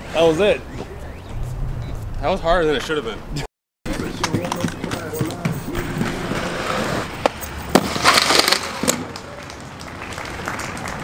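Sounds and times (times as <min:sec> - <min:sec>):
sharp clacks of skates: 0:03.9 - 0:11.0
skate wheels rolling on concrete: 0:03.9 - 0:11.0
skate scraping a ledge: 0:05.6 - 0:09.0.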